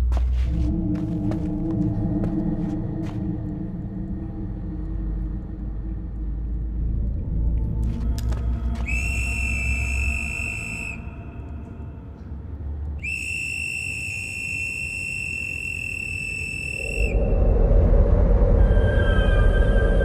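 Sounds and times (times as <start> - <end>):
low rumble: 0.0 - 13.0, 16.8 - 20.0
whistle blasts: 8.8 - 11.0, 13.0 - 17.2.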